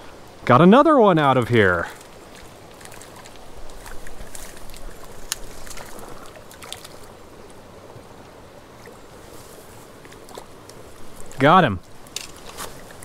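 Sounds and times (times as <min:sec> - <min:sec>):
fish splashing at water surface: 0:01.9 - 0:07.2.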